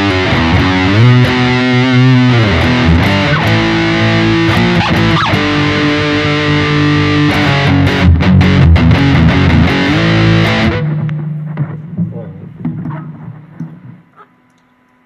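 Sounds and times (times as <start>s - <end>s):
guitar slides: 0.0s - 14.3s
distorted electric guitar: 0.0s - 14.5s.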